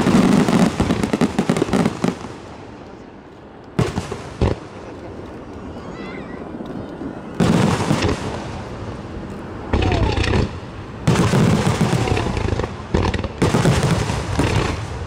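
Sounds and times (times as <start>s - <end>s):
fireworks booms: 0.0s - 2.8s, 3.8s - 5.0s, 7.4s - 8.8s, 9.7s - 15.0s
fireworks crackling and rumble: 0.0s - 15.0s.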